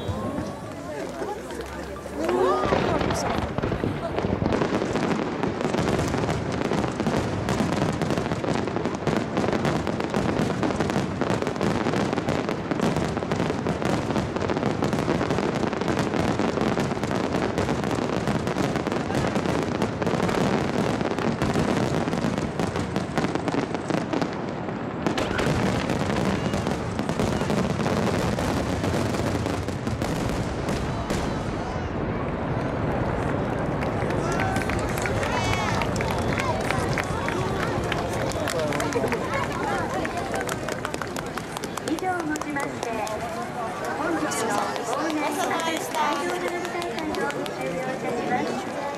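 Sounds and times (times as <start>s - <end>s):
fireworks barrage bursts and crackle: 0.0s - 48.9s.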